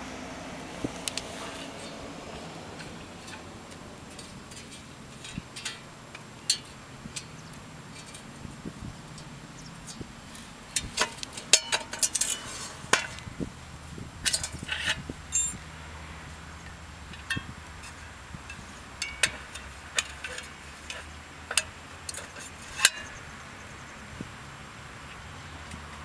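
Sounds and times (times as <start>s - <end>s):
small metal parts clicking: 10.8s - 12.5s, 14.2s - 15.6s.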